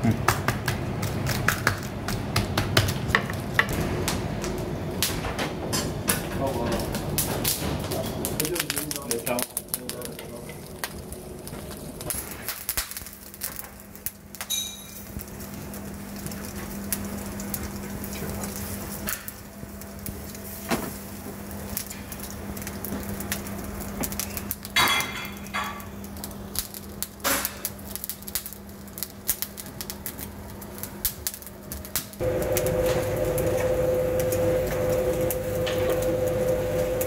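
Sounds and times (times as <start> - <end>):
skewers sizzling on charcoal grill: 0.0 - 37.0
pops and crackles: 8.3 - 14.5
steady low hum: 30.7 - 37.0.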